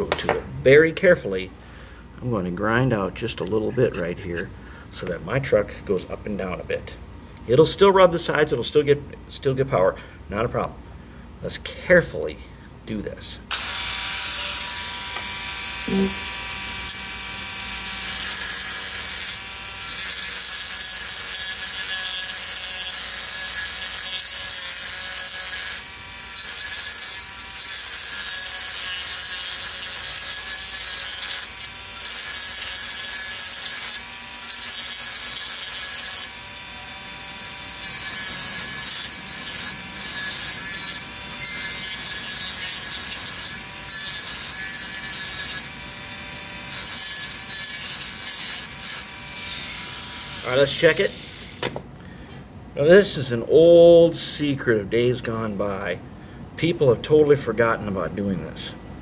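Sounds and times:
rotary tool grinding metal: 3.5 - 4.5, 13.5 - 51.7.

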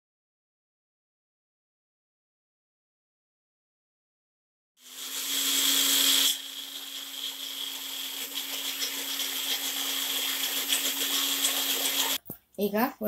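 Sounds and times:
blender motor whirring: 4.8 - 12.2.

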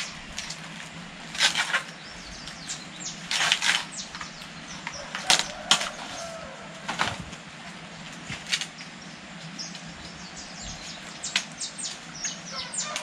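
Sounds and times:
corn husks tearing: 0.0 - 7.4.

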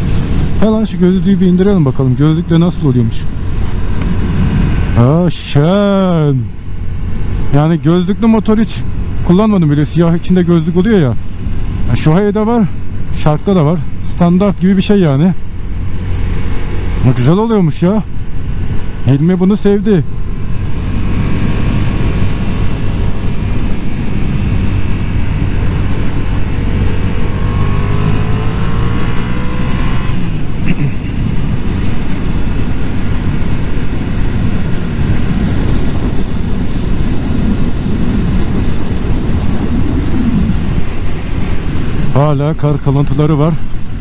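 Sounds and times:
motorcycle engine: 0.0 - 9.9, 13.8 - 44.0
wind rush on microphone: 0.0 - 44.0.

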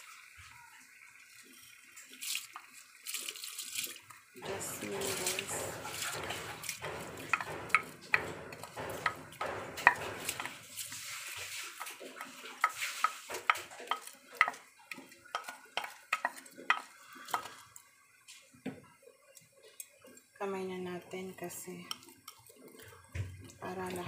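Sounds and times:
cookware clinking against pot: 4.4 - 17.8.

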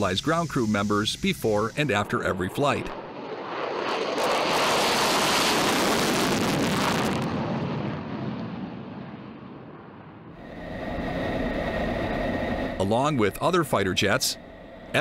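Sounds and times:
fighter jet taking off: 0.0 - 15.0.

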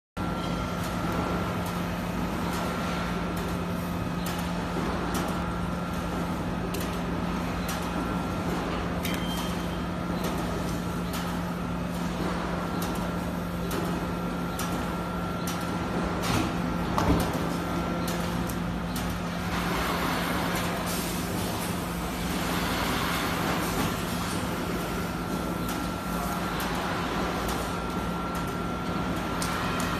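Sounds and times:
machine hum: 0.2 - 29.9.

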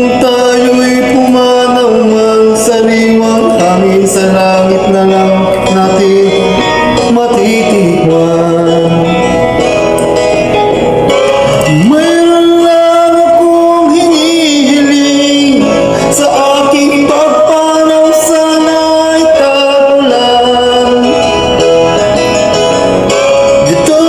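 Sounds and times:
man singing: 0.0 - 9.6, 11.4 - 24.0
musical accompaniment: 0.0 - 24.0.

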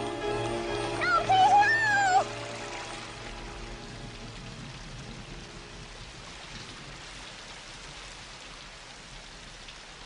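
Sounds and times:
rain on a wet street: 0.0 - 10.0
water running into a drain: 0.1 - 10.0.

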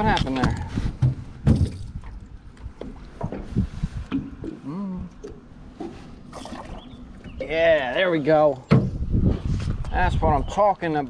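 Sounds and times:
knocks and bumps in a boat: 0.0 - 7.5, 8.6 - 9.5.

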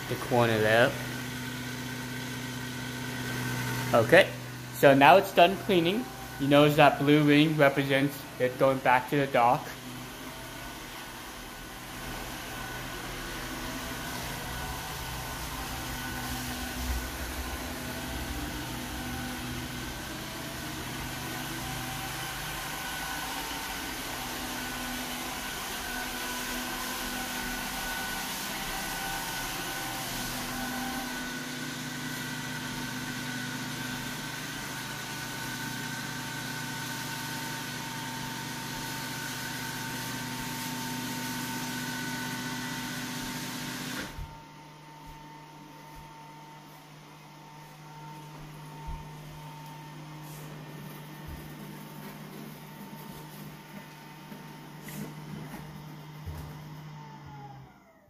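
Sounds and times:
robot vacuum whirring: 9.6 - 31.3.

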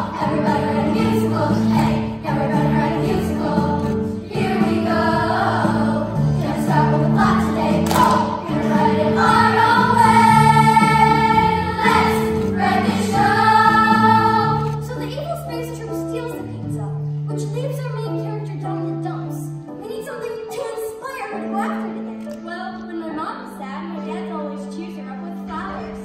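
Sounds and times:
children's chorus singing: 0.0 - 14.8
instrumental accompaniment: 0.0 - 23.2.

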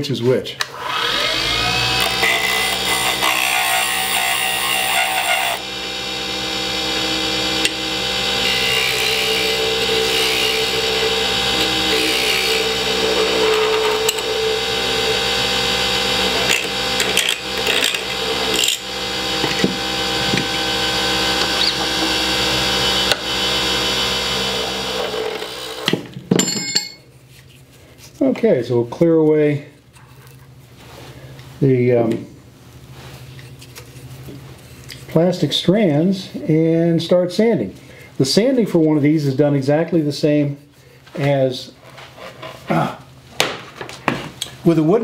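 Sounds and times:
lathe motor whine: 0.7 - 25.9
turning tool rasping on wood: 1.2 - 22.2.

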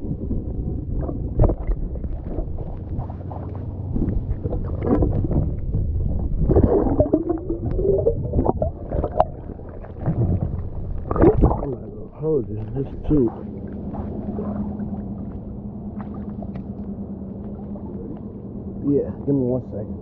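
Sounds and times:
underwater moving water and bubbles: 0.0 - 20.0
wavering warbling sound: 6.2 - 18.9.

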